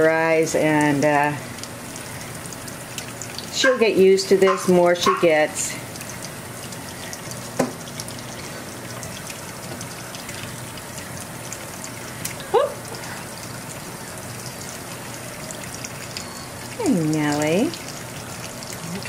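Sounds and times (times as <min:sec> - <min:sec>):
faucet running into metal sink: 0:00.0 - 0:19.0.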